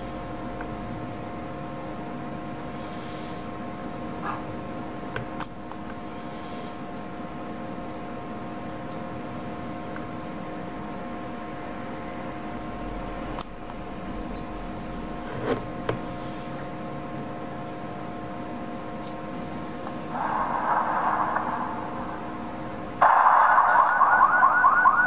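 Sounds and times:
steady multi-tone hum: 0.0s - 25.0s
hiss: 20.1s - 23.8s.

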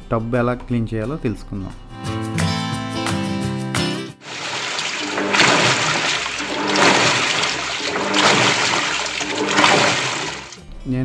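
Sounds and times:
water churning in a washing machine: 4.2s - 10.6s.

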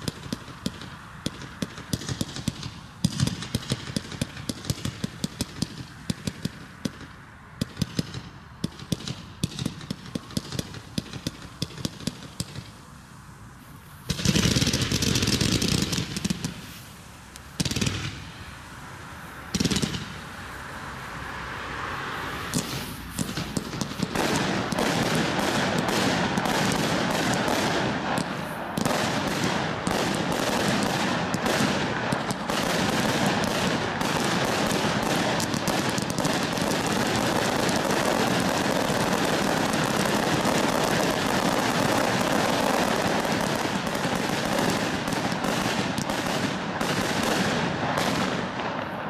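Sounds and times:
fireworks crackling and popping: 0.0s - 49.0s.

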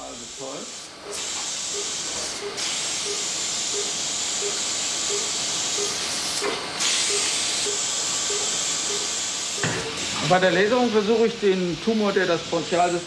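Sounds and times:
medical equipment hiss: 0.1s - 11.2s
patient monitor beeping: 1.7s - 6.0s, 7.1s - 9.1s.

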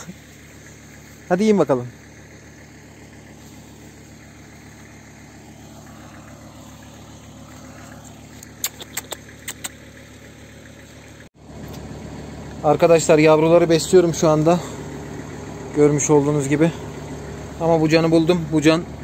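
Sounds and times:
engine hum: 0.0s - 19.0s
short sharp clicks: 8.3s - 9.9s.

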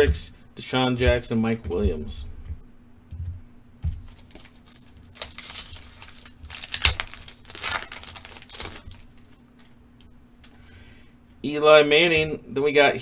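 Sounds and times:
foil pack crinkling: 4.0s - 9.8s
foil tearing: 4.1s - 9.4s.

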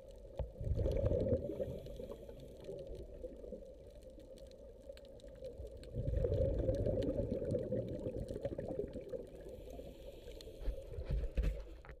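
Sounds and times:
faint crackles: 0.0s - 12.0s
underwater rumbling and bubbling: 0.0s - 12.0s.

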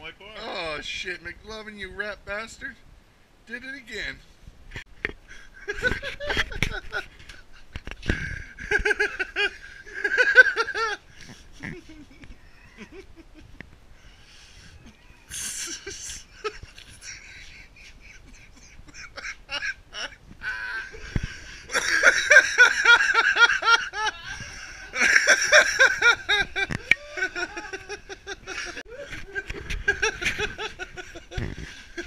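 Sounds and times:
people laughing: 5.6s - 7.0s, 8.2s - 13.6s, 15.6s - 32.0s.

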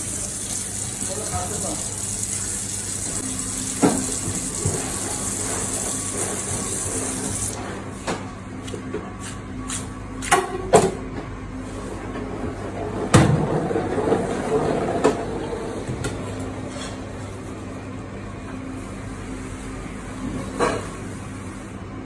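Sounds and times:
tap water running into sink: 0.0s - 7.6s.

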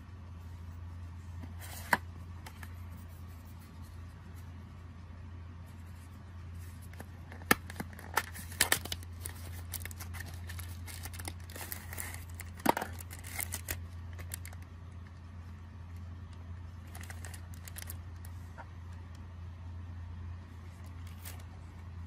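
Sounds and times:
steady low hum: 0.0s - 22.0s
plastic bag crinkling: 7.8s - 14.6s, 16.8s - 18.3s.

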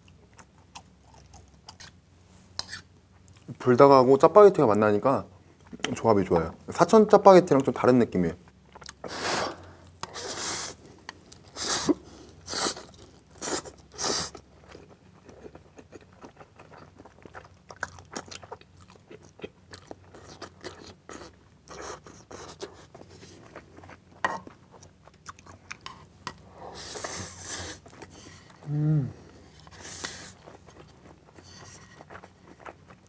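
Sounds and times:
loud noodle slurps: 11.6s - 14.3s
wet chewing with clicks: 12.9s - 26.4s, 30.0s - 33.0s.

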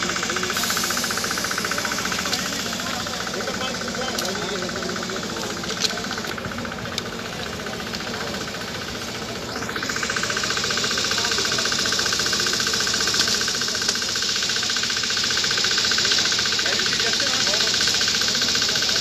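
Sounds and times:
hiss: 0.0s - 6.2s, 7.1s - 19.0s
small engine running: 0.0s - 19.0s.

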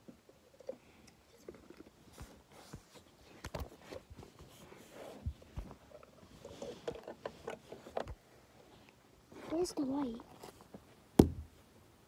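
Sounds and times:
soft rustling: 0.7s - 11.1s
firm thumps: 11.2s - 11.6s.

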